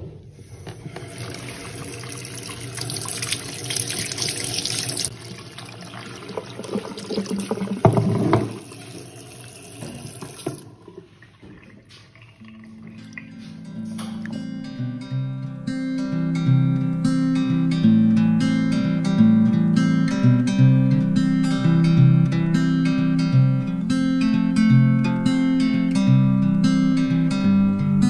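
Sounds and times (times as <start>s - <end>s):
tap running into sink: 0.6s - 14.4s.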